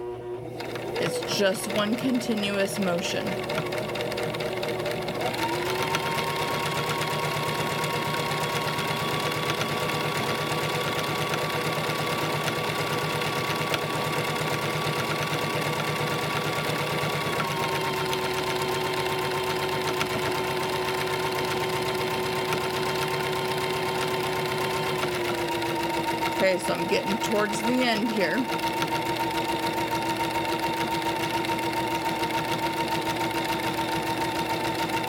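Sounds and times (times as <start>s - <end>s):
sewing machine running: 0.0s - 35.0s.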